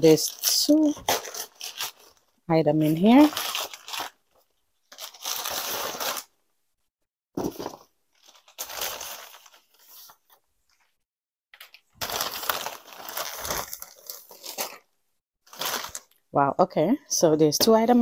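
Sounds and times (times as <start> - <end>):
bubble wrap crinkling: 0.1 - 6.4, 7.5 - 10.8, 11.6 - 14.9, 15.5 - 16.2
paper bag rustling: 12.0 - 14.8.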